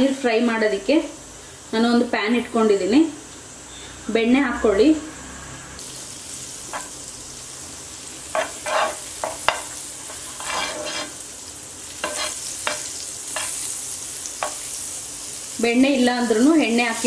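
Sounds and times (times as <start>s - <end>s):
butter sizzling in a frying pan: 5.8s - 17.0s
fork scraping a pan: 8.3s - 11.2s, 12.0s - 13.7s.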